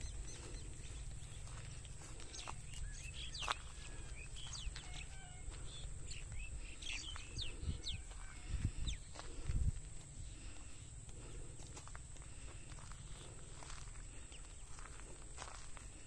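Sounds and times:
wind rumble on microphone: 0:00.0 - 0:10.5
birds chirping: 0:00.0 - 0:16.0.

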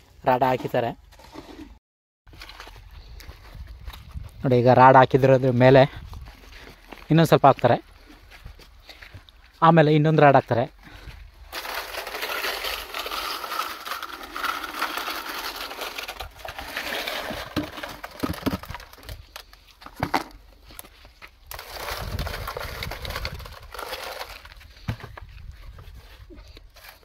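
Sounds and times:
wet concrete pouring: 0:11.6 - 0:19.0.

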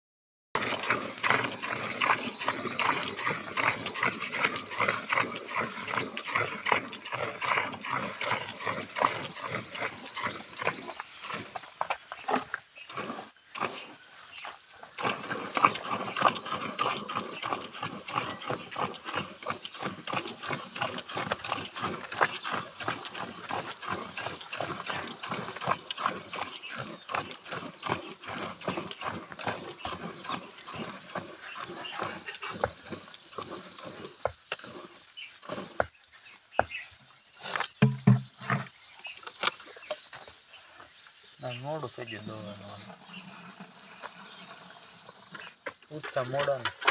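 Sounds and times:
milk squirting into metal bucket: 0:15.0 - 0:32.7.

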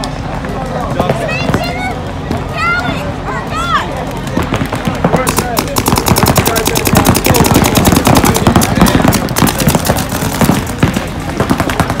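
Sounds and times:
paintball markers firing: 0:04.3 - 0:12.0.

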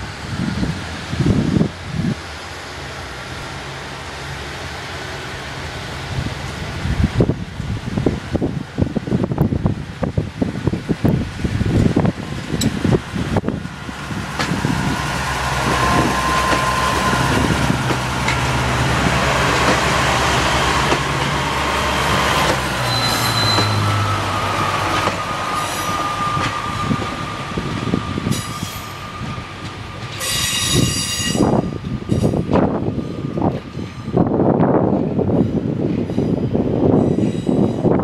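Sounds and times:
diesel train engines droning: 0:00.0 - 0:38.0
brief high squeal: 0:22.8 - 0:24.1.

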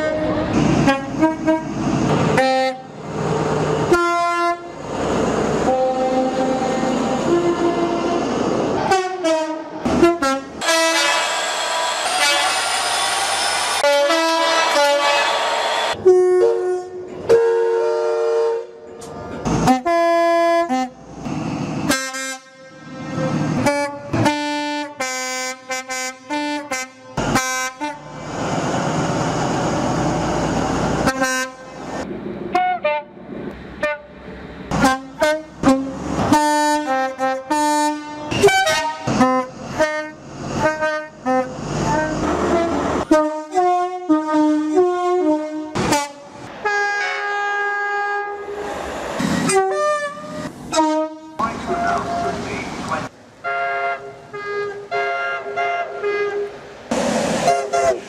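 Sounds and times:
two-tone train horn blasts: 0:00.0 - 0:02.9, 0:03.9 - 0:04.7, 0:05.6 - 0:08.2, 0:08.8 - 0:12.9, 0:13.8 - 0:18.9, 0:19.6 - 0:21.0, 0:21.9 - 0:28.1, 0:31.0 - 0:31.8, 0:34.7 - 0:48.5, 0:49.5 - 0:52.4, 0:53.4 - 0:56.6, 0:57.5 - 0:58.0
train engine and running noise: 0:00.0 - 0:58.0.

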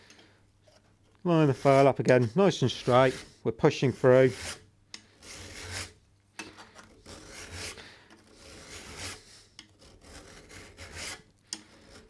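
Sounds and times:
file rasping on steel: 0:01.3 - 0:03.4, 0:04.0 - 0:06.0, 0:06.9 - 0:12.0.

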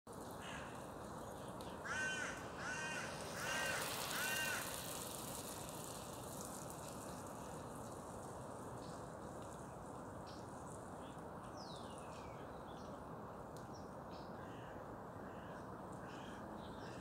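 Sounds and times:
parakeet screeching calls: 0:01.9 - 0:04.6.

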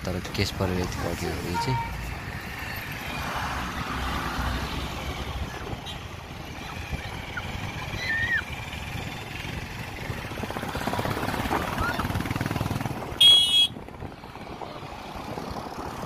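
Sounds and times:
road noise rumble and hiss: 0:00.0 - 0:16.0.

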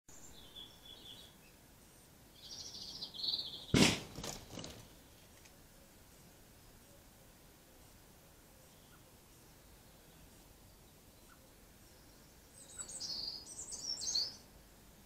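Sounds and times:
small birds chirping: 0:00.1 - 0:15.0
nail gun firing: 0:03.8 - 0:04.7.

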